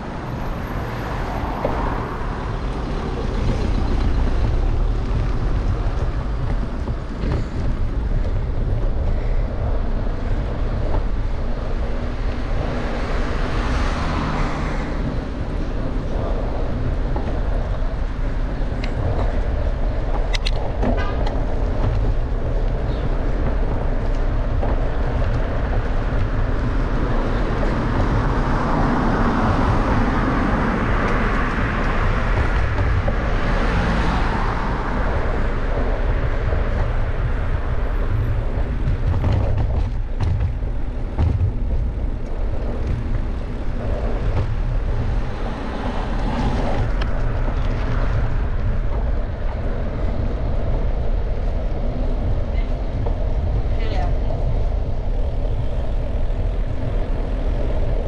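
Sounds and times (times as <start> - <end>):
road rumble: 0.0 - 58.0
wind on microphone: 0.0 - 58.0
motor vehicle passing: 21.0 - 58.0.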